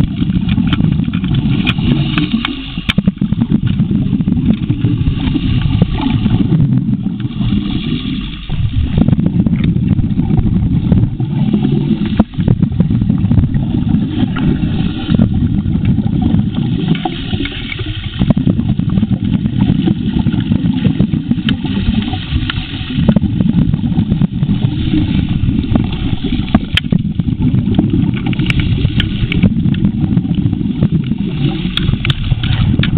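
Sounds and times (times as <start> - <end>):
gravel clicking and rattling: 0.0 - 7.3, 25.4 - 32.9
dredge engine rumble underwater: 0.0 - 32.9.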